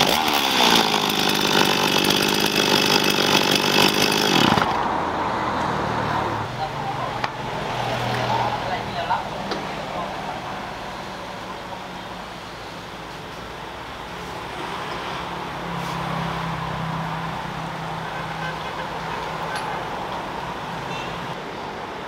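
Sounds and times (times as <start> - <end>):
small engine running: 0.0 - 4.8
street traffic: 3.0 - 22.0.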